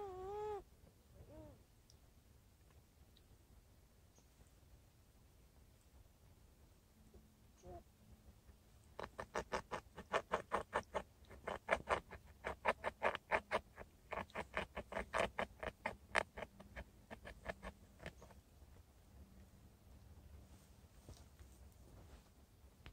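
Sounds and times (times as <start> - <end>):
beavers making rapid short sounds: 9.0 - 18.4.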